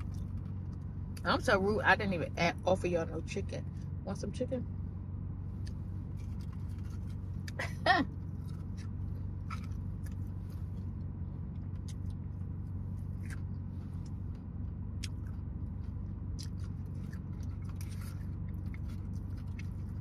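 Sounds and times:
person chewing fried chicken: 0.0s - 0.9s, 5.6s - 20.0s
low hum inside car: 0.0s - 20.0s.

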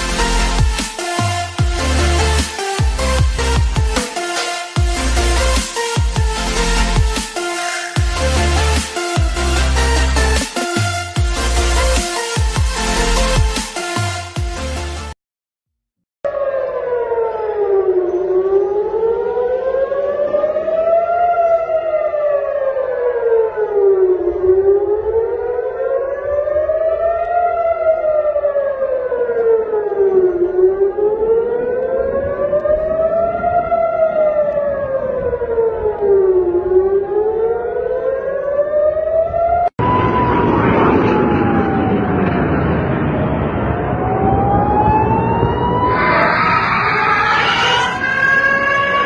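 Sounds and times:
air-raid siren wailing: 0.0s - 15.1s, 16.3s - 49.0s.

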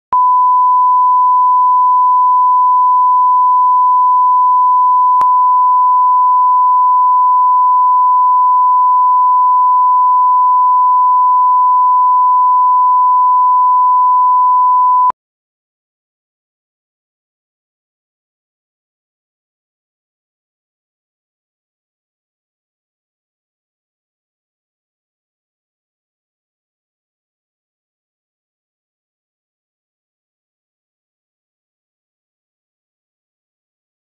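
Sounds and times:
sine test tone: 0.2s - 15.2s.

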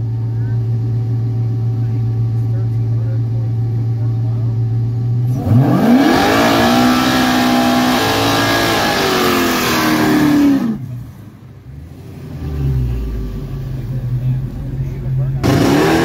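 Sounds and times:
engine idling: 0.0s - 5.6s, 10.5s - 16.0s
spinning tyres hissing: 5.2s - 14.0s
car engines revving hard: 5.2s - 16.0s.

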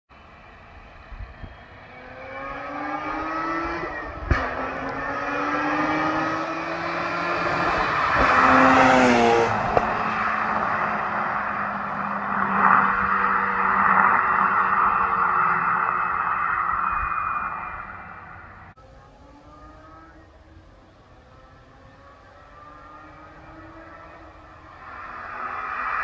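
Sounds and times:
rotary engine accelerating: 1.0s - 26.0s
exhaust crack: 6.0s - 18.8s.

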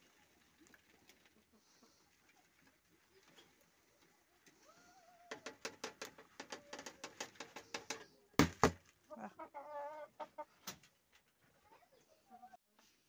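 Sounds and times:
hens pecking on plastic feeder: 0.0s - 12.5s
hen clucking: 1.0s - 8.2s, 9.0s - 10.8s
loud knocks on feeder: 8.4s - 8.8s.

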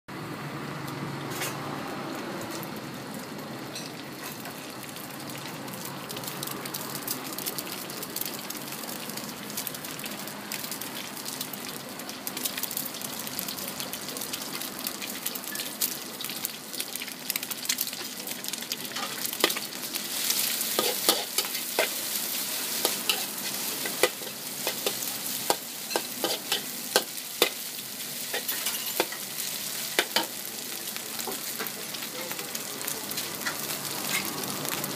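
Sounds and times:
food sizzling in hot oil: 2.5s - 34.9s
metal spatula scraping wok: 20.2s - 29.2s, 33.4s - 34.3s.

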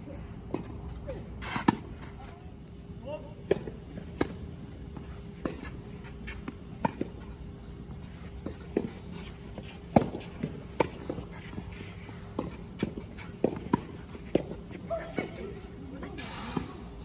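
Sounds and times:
tennis balls struck by rackets: 1.6s - 2.0s, 3.4s - 4.5s, 5.4s - 7.2s, 8.4s - 16.8s
tennis balls bouncing: 3.4s - 16.8s.

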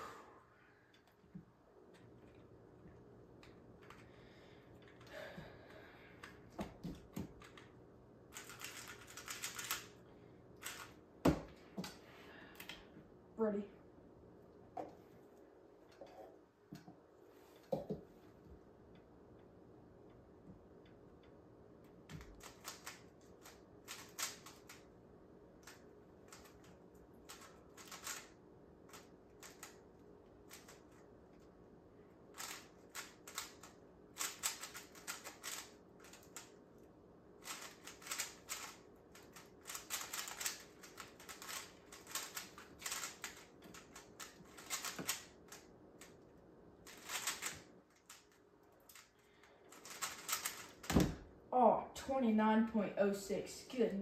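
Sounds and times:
puzzle cube layers clicking: 8.3s - 9.9s, 37.4s - 46.1s, 49.7s - 50.9s.

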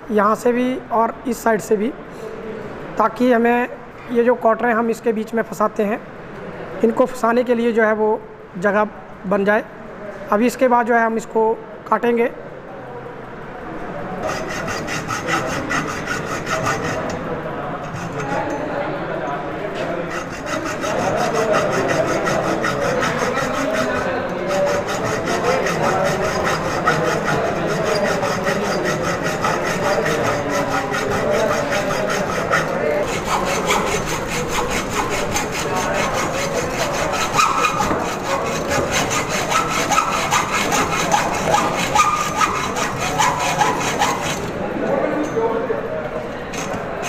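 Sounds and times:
hacksaw cutting metal pipe: 14.2s - 17.2s, 17.8s - 18.6s, 20.1s - 44.5s, 46.5s - 47.0s.

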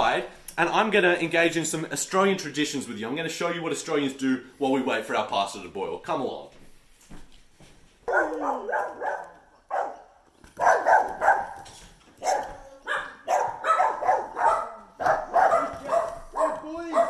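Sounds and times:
dog barking: 8.0s - 17.0s.

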